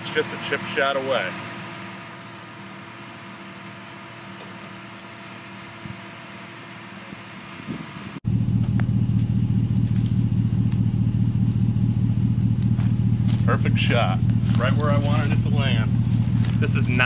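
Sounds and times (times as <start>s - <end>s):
engine hum: 0.0s - 17.0s.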